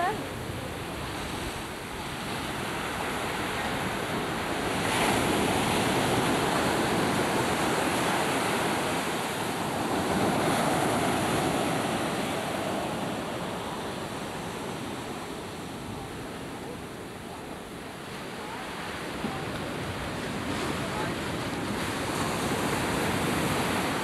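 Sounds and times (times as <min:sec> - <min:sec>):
waves washing up a beach: 0:00.0 - 0:24.0.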